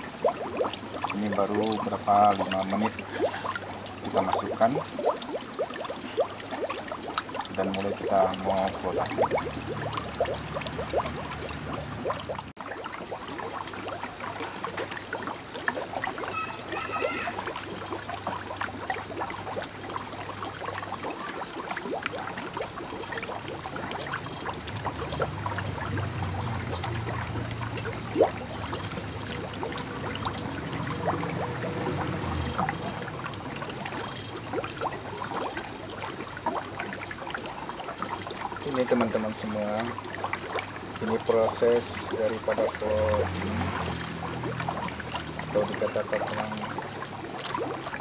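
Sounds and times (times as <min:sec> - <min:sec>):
bubbles gurgling in slurry: 0:00.0 - 0:48.0.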